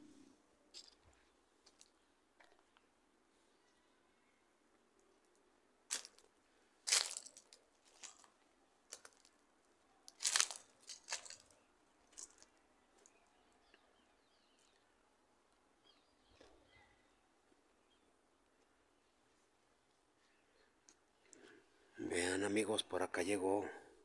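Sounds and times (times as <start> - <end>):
footsteps on gravel: 5.9 - 6.2, 6.9 - 8.3, 10.2 - 11.5.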